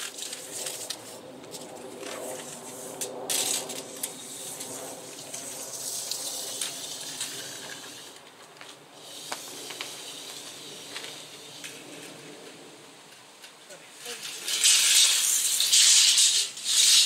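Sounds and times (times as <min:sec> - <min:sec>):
faint steady hiss: 0:04.0 - 0:17.0
footsteps on concrete: 0:08.4 - 0:11.2
loud scrape: 0:14.0 - 0:17.0.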